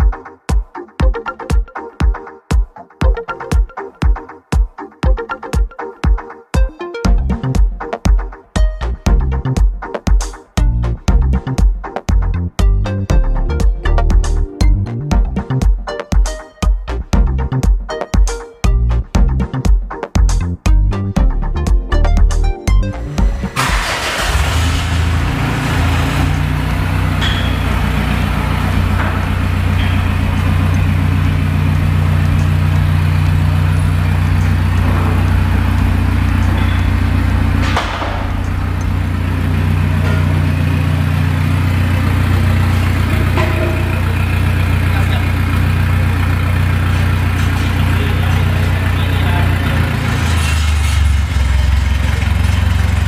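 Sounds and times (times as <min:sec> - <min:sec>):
diesel engine idling: 0:22.8 - 0:53.0.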